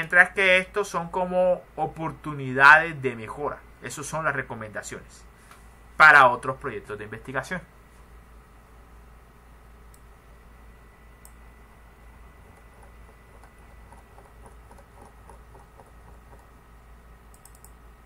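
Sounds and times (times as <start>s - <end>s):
low steady hum: 0.0s - 18.0s
computer mouse clicks: 9.9s - 10.1s, 11.2s - 11.4s, 12.4s - 16.6s, 17.3s - 17.8s
scroll wheel ticks: 12.4s - 16.6s, 17.3s - 17.8s.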